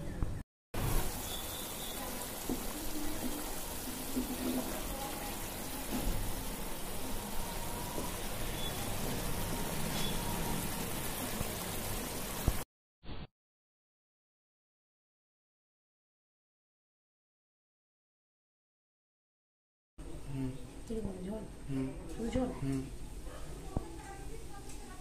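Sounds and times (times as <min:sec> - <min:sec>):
curry bubbling and sizzling: 0:00.8 - 0:12.6.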